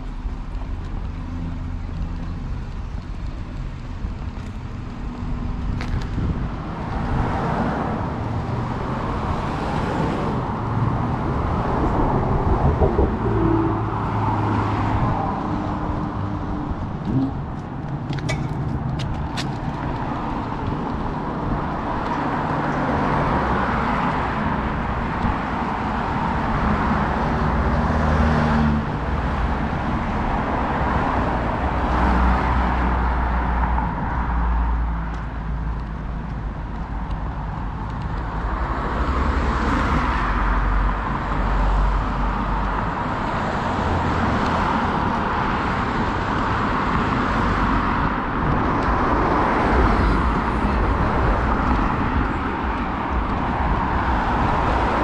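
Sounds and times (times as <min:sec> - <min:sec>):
cars passing: 0:00.0 - 0:55.0
low rumble: 0:10.8 - 0:20.9.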